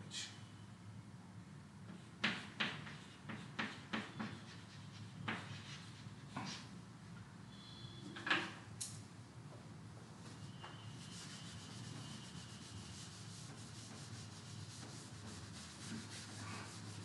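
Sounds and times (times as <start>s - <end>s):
faint steady hum: 0.0s - 17.0s
chalk knock on chalkboard: 1.9s - 6.6s, 13.0s - 17.0s
chalk tapping and scraping: 1.9s - 6.7s, 10.2s - 17.0s.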